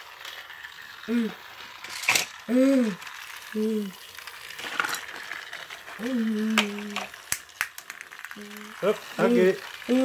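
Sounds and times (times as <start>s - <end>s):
plastic toy train clicks: 0.0s - 10.0s
person humming: 1.1s - 1.4s, 2.5s - 3.0s, 6.0s - 7.1s, 8.4s - 8.7s.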